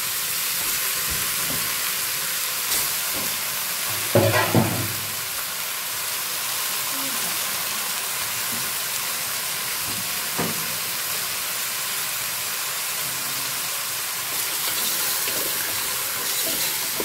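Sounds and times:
chicken sizzling in hot oil: 0.0 - 17.0
wooden spatula scraping pot: 14.4 - 17.0.

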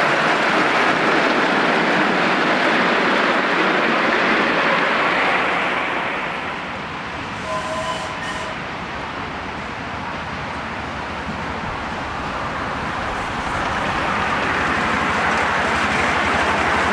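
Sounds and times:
miniature steam train passing: 0.0 - 16.9.

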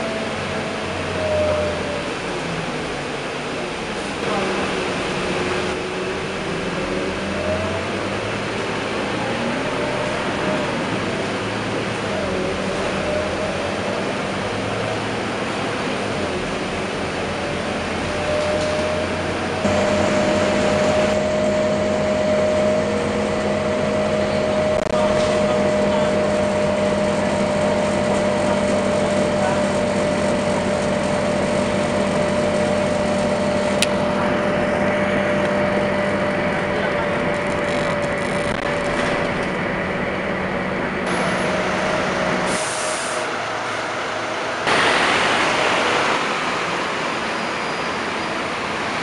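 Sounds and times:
bus cabin drone: 0.0 - 49.0
hissy outdoor sound: 42.5 - 49.0.

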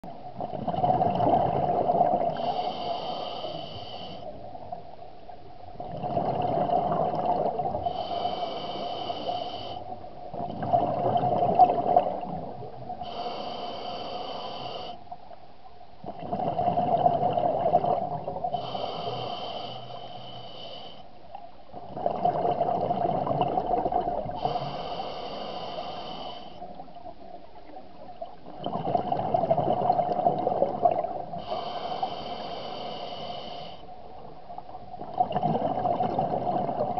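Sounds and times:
bubbling exhalation underwater: 0.6 - 2.4, 10.4 - 12.5, 21.9 - 24.3, 28.6 - 31.2, 35.0 - 36.9
regulator hissing inhalation: 2.4 - 4.3, 7.8 - 9.8, 13.0 - 15.0, 18.6 - 21.0, 24.4 - 26.6, 31.4 - 33.9.

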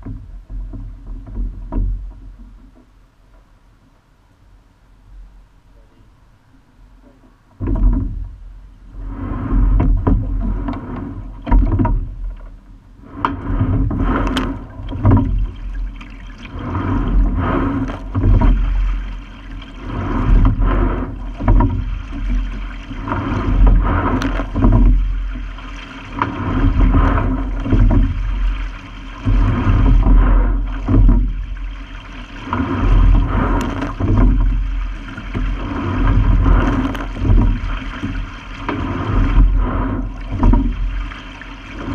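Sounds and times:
oar splashes: 0.0 - 4.0, 5.7 - 41.9
water rushing along hull: 0.0 - 41.9
heavy rumble: 6.8 - 41.9
knocks from rigging: 7.0 - 8.4, 9.5 - 12.6, 13.2 - 41.9.

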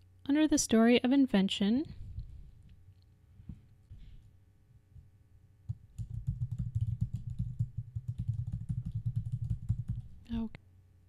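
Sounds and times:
typing on computer keyboard: 5.9 - 10.2.

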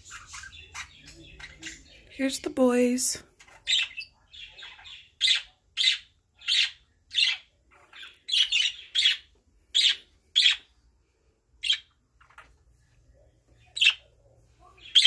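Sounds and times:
budgerigars chirping: 0.0 - 2.2, 3.4 - 10.7, 11.6 - 12.5, 13.6 - 14.1, 14.8 - 15.0.

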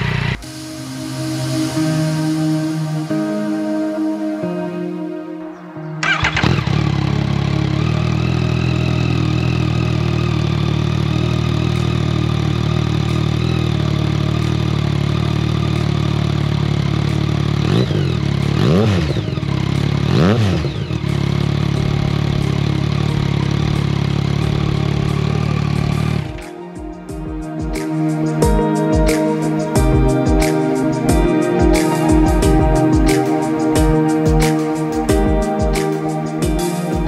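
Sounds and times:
motorcycle engine idling: 0.0 - 0.4, 6.0 - 26.4
motorcycle engine revving: 0.0 - 0.7, 6.0 - 26.5.

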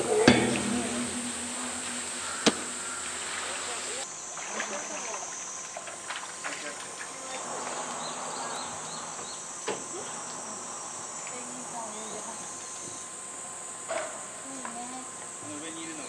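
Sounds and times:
short knock: 0.0 - 3.5
cicadas buzzing: 0.0 - 16.0.

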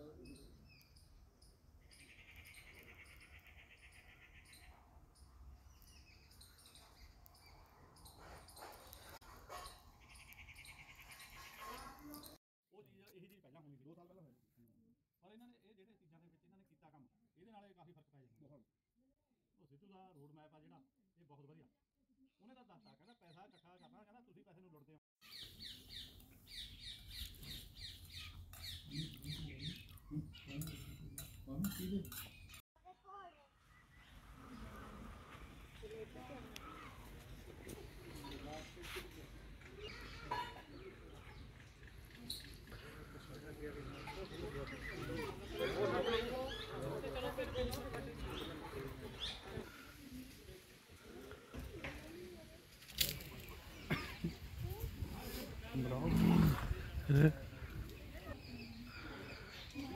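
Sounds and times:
small birds chirping: 0.0 - 12.4, 25.2 - 32.6, 33.6 - 50.5, 53.0 - 59.9.

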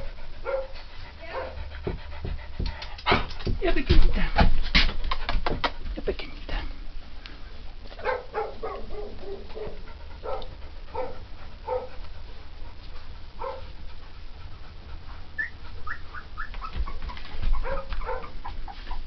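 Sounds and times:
dog whimpering: 15.4 - 19.0.

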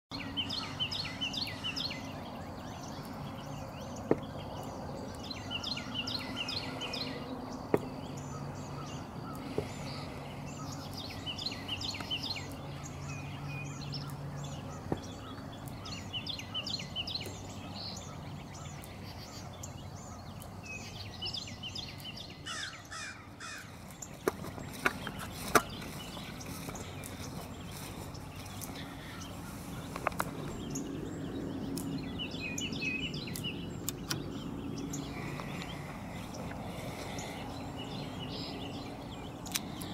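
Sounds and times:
low steady hum: 0.1 - 39.9
songbirds singing: 0.1 - 39.9
sharp clicks: 33.3 - 34.4, 39.4 - 39.9.

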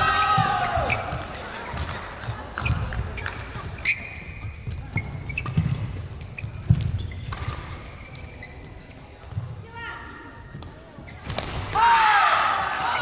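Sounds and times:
shoes squeaking on court: 0.2 - 9.6, 10.6 - 11.4
rackets striking shuttlecock: 5.3 - 8.3.

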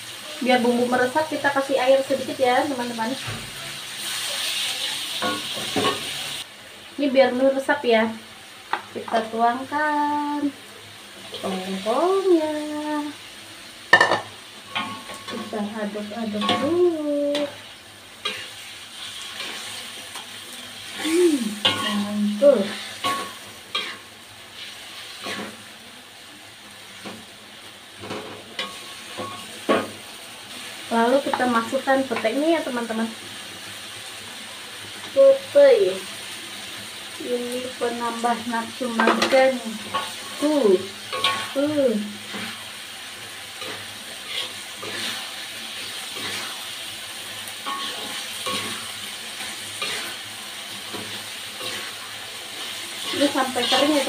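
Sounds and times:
sauce sizzling: 0.0 - 54.0
spatula scraping a metal wok: 16.3 - 25.6, 38.9 - 54.0.

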